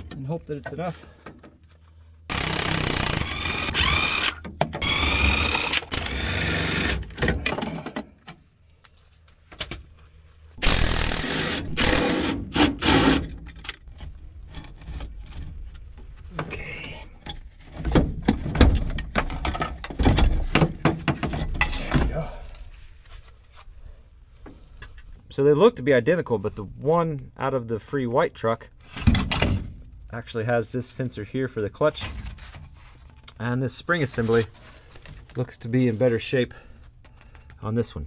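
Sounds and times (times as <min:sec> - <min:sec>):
metal clanks and knocks: 0:17.2 - 0:22.1.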